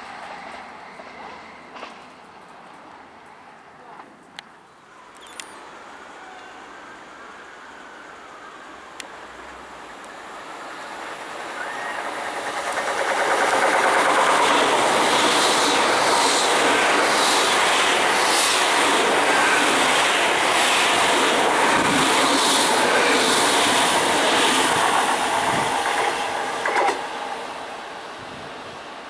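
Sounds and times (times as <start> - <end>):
train passing at speed: 0.0 - 4.1, 4.7 - 29.0
wheels clicking over rail joints: 11.0 - 14.9, 24.8 - 27.1.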